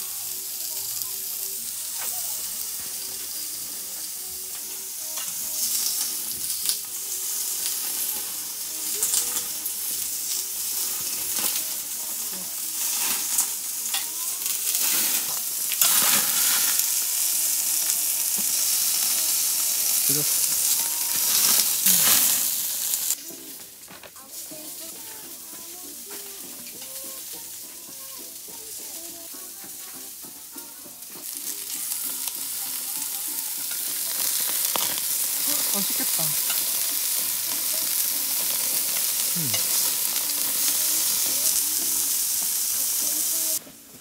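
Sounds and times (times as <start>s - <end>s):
pork sizzling on a grill: 0.0s - 44.0s
metal tongs clicking on grate: 5.1s - 6.8s, 8.9s - 9.5s, 13.0s - 16.6s, 33.7s - 35.8s, 36.4s - 40.8s.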